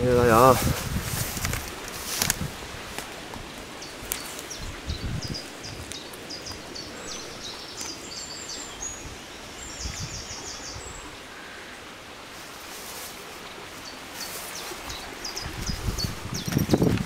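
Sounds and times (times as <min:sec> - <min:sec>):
footsteps through leaf litter: 0:00.3 - 0:04.5, 0:12.3 - 0:15.2
songbird chirping: 0:03.6 - 0:16.9.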